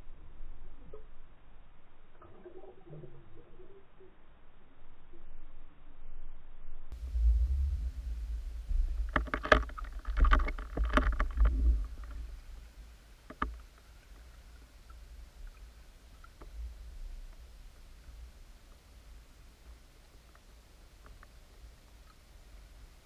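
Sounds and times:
muffled underwater rumble: 0.0s - 23.0s
knocks and rattles: 8.7s - 12.2s.

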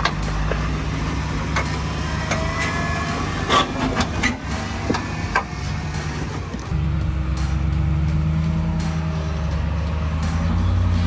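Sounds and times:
knocks and clicks: 0.0s - 0.7s, 1.4s - 2.8s, 3.4s - 6.8s
vehicle engine at low revs: 0.0s - 11.0s
short squeaks: 2.2s - 5.1s.

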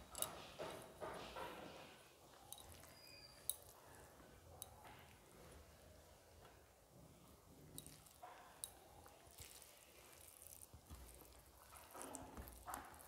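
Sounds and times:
food squished by hand: 7.8s - 13.0s.

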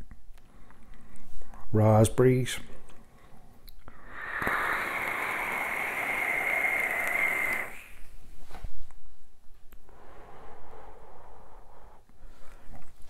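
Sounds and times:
e-cigarette draw hiss: 4.0s - 8.1s.

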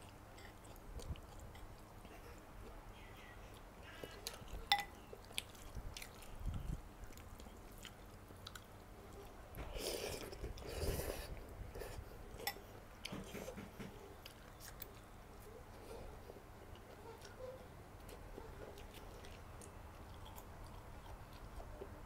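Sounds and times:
slurping and chewing noodles: 9.7s - 12.5s.

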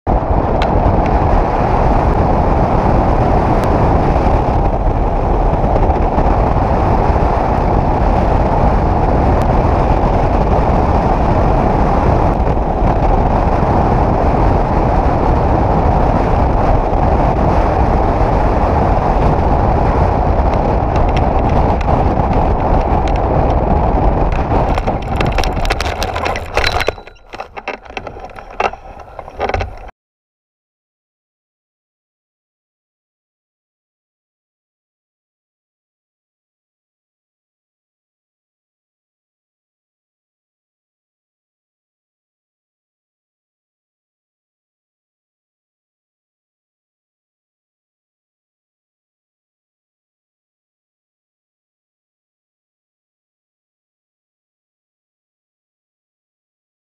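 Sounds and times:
wind roar on microphone: 0.1s - 29.9s
skids knocking and clattering: 24.2s - 29.9s.

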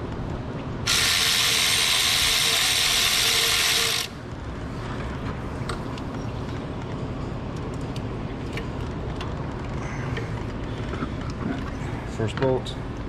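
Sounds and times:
impact wrench spinning bolt: 0.9s - 4.2s.

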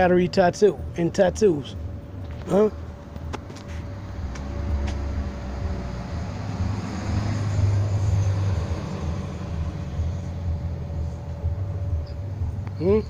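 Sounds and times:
motor vehicle passing: 1.6s - 13.0s.

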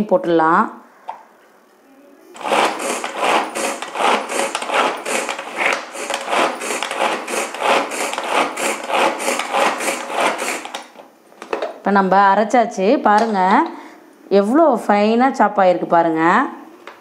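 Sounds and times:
pull-cord chopper zipping: 2.4s - 10.9s.

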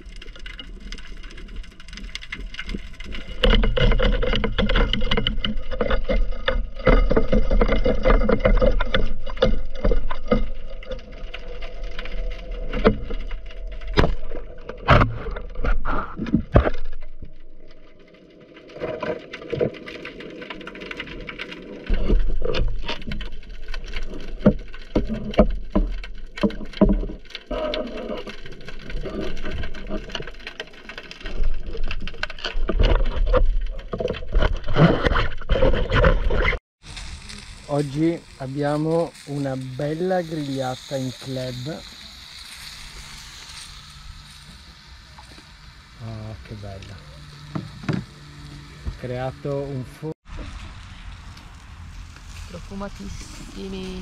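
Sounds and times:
sharp clicks and knocks: 0.0s - 17.8s, 18.7s - 36.6s, 46.7s - 48.2s
underwater rumble of moving water: 0.0s - 54.0s.

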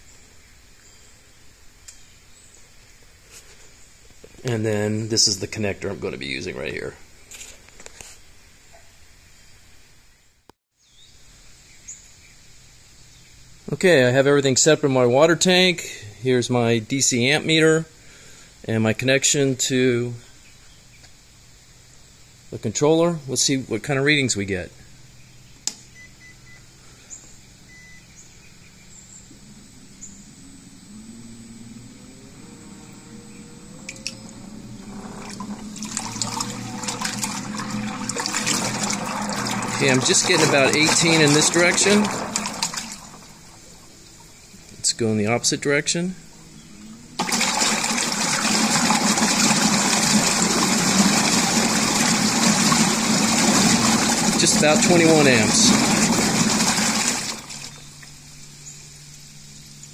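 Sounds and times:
low electric motor hum: 24.6s - 59.9s
water churning: 32.3s - 44.6s, 47.1s - 58.0s.

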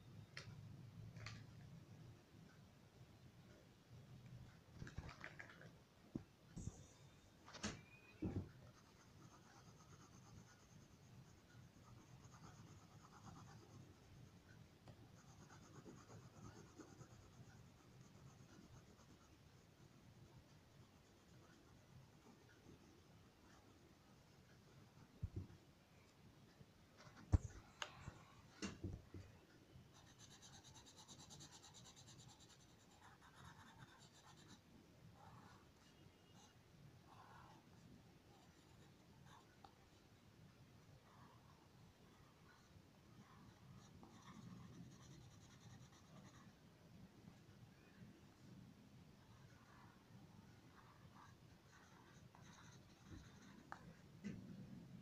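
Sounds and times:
crayon scratching on paper: 8.8s - 14.2s, 15.2s - 19.6s, 29.9s - 34.6s, 43.4s - 46.5s, 50.7s - 53.8s.

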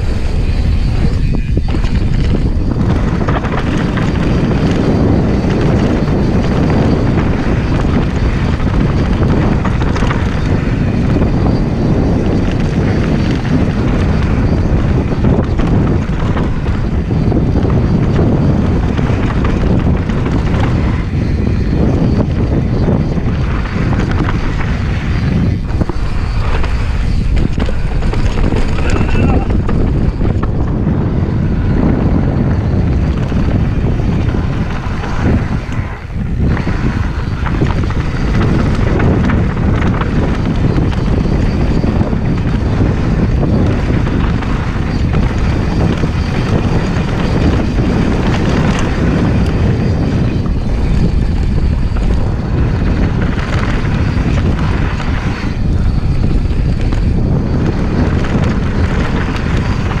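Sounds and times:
bike rattling over bumps: 0.0s - 60.0s
tyres rolling on loose dirt: 0.0s - 60.0s
wind buffeting microphone: 0.0s - 60.0s.

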